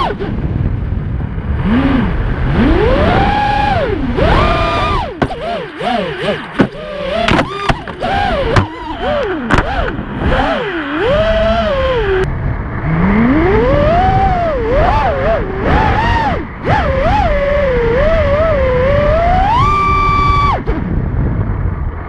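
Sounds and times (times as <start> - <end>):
drone motors whining: 1.5 - 21.8
sharp knocks: 5.2 - 5.5, 6.5 - 8.8, 9.5 - 10.0.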